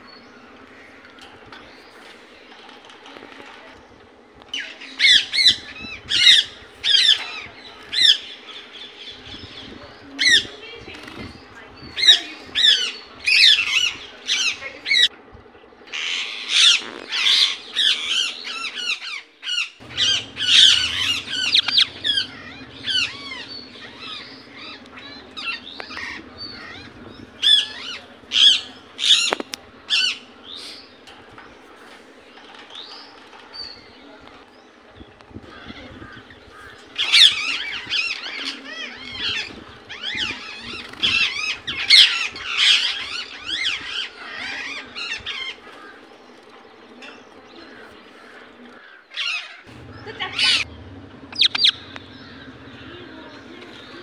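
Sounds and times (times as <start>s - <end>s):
parakeet shrill squawks: 51.3s - 51.8s.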